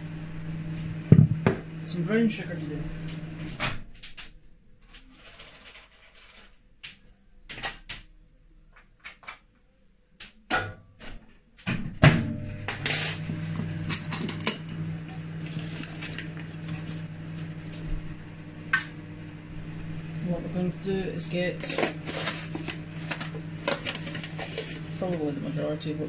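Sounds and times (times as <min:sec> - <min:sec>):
microwave oven humming: 0:00.0 - 0:05.6, 0:12.0 - 0:26.0.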